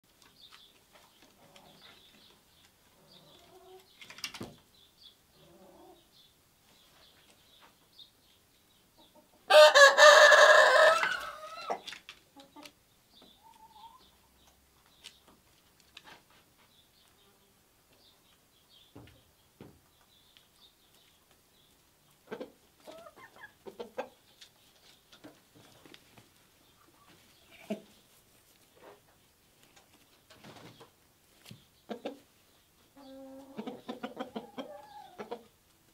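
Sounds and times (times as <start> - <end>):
hens clucking and chirping: 0.2 - 35.9
rooster crowing: 9.5 - 11.8.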